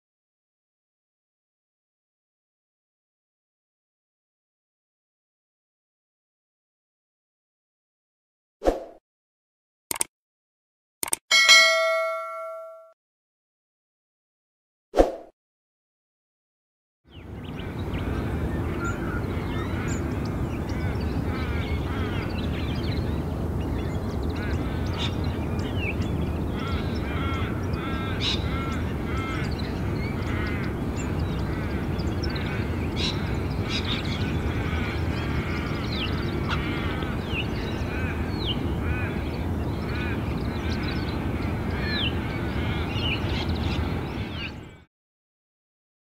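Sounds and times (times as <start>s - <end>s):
birds calling and chattering: 17.1s - 44.9s.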